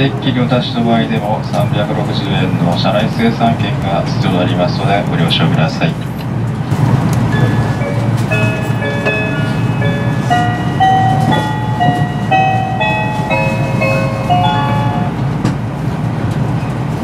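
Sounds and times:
train rumbling: 0.0 - 17.0
electronic chime melody: 7.3 - 15.2.

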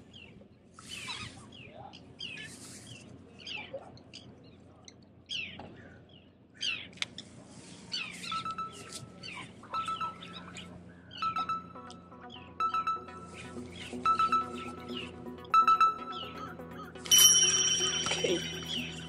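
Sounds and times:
birds chirping: 0.0 - 7.2, 7.8 - 19.0
steady held tone: 9.6 - 19.0.

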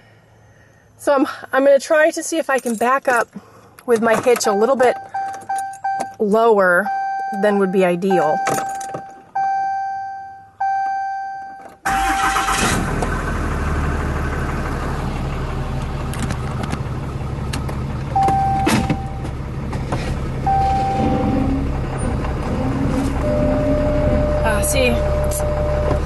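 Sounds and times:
vehicle warning chime dinging: 4.3 - 11.8, 18.1 - 19.3, 20.4 - 21.6, 23.2 - 26.0
engine cranking and starting: 11.8 - 19.1
engine idling: 11.9 - 26.0.

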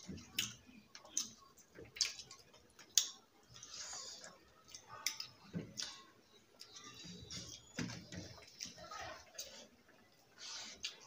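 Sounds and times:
wet chewing and lip smacks: 0.3 - 6.0.

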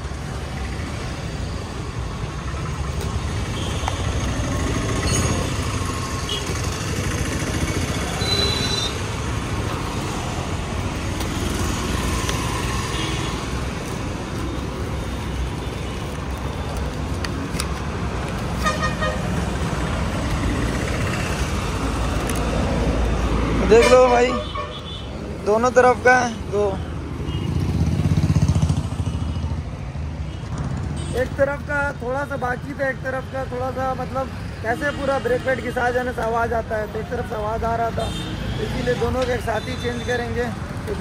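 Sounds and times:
rumble of vehicles: 0.0 - 41.0
packaging clicks and rustles: 15.9 - 18.6, 21.9 - 22.7.

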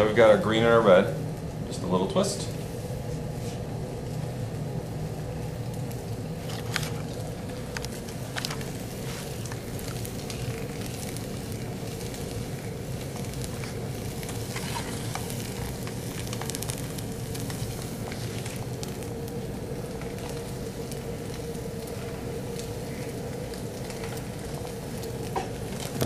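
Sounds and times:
fire crackling: 0.0 - 26.0
sizzling rush of flame: 0.0 - 26.0.

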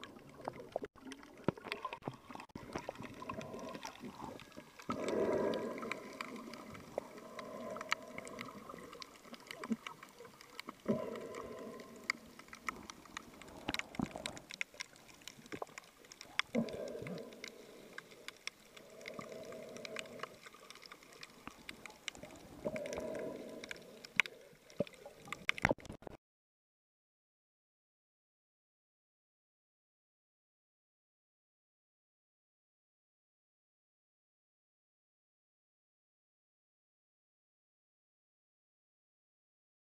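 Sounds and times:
underwater clicks and crackles: 0.0 - 26.2.

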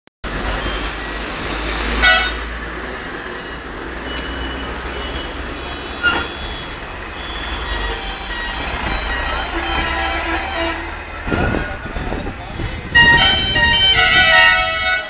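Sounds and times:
road traffic noise: 0.2 - 15.0
vehicle horn toots: 2.0 - 2.5, 7.4 - 11.9, 12.6 - 15.0.

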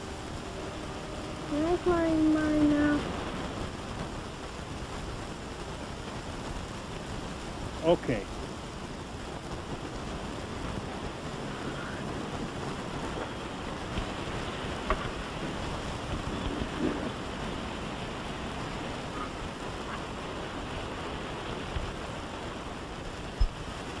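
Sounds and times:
wind rushing: 0.0 - 6.4.

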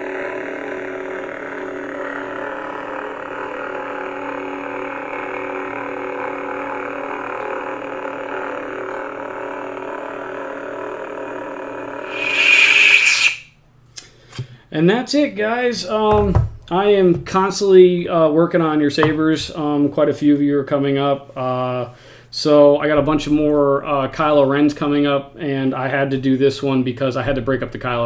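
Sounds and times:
lightsaber blade hum: 0.0 - 4.6, 8.0 - 13.5.

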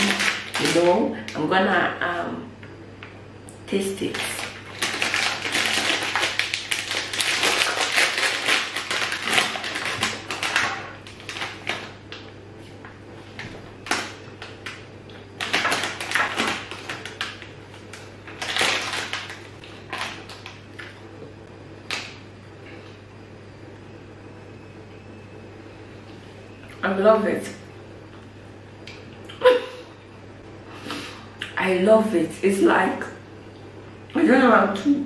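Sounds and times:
plastic bag crinkling: 0.0 - 1.5, 4.0 - 12.2, 13.7 - 20.8.

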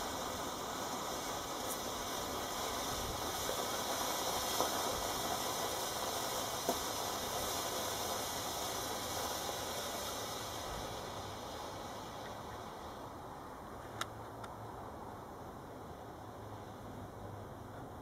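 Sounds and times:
rocket motor hissing: 0.0 - 14.1.

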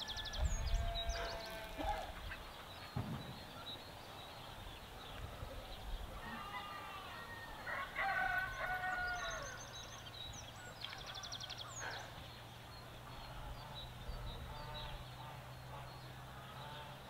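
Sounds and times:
farmyard fowl calling: 0.0 - 2.9, 6.2 - 9.6, 13.2 - 17.0.

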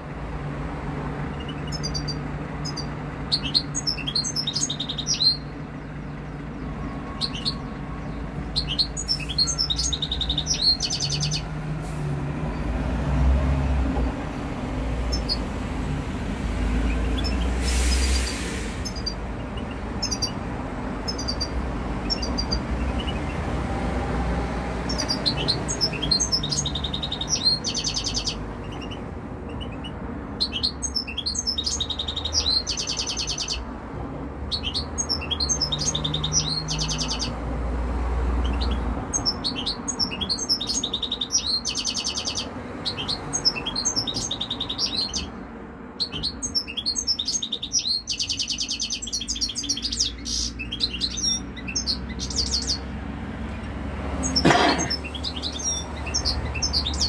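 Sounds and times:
finches twittering and trilling: 1.3 - 11.5, 15.0 - 15.6, 16.8 - 20.4, 21.0 - 23.5, 24.8 - 33.6, 34.4 - 37.4, 38.4 - 45.4, 46.0 - 52.9, 54.2 - 57.0.

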